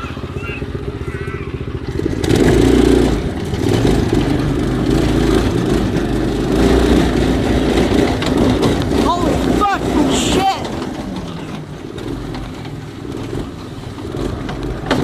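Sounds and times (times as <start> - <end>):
go-kart engine revving: 0.0 - 15.0.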